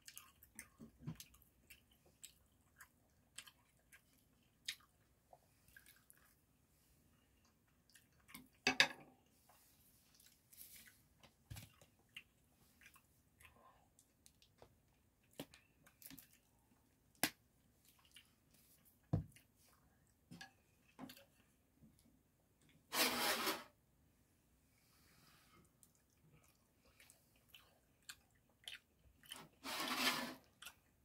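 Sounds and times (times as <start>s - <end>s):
wet chewing: 0.0s - 6.4s, 25.8s - 29.6s, 30.4s - 31.0s.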